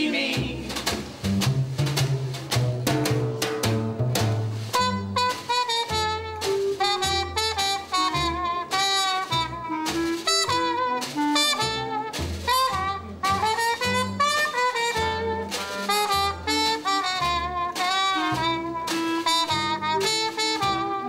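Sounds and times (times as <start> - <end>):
walking upright bass: 0.0 - 21.0
snare drum: 0.4 - 21.0
trumpet melody: 4.6 - 21.0
clarinet: 4.7 - 21.0.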